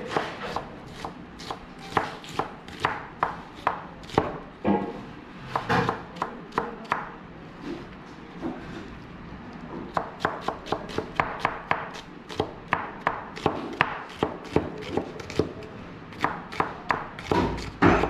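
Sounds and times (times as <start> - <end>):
knife chopping on cutting board: 0.0 - 4.9, 5.5 - 7.1, 9.9 - 15.5, 16.2 - 18.0.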